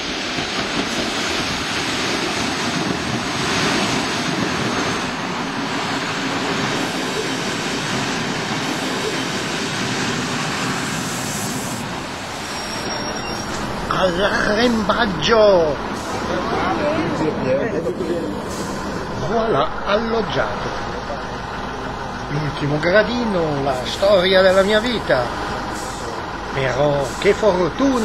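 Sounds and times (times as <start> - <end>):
diesel train passing: 0.0 - 28.0.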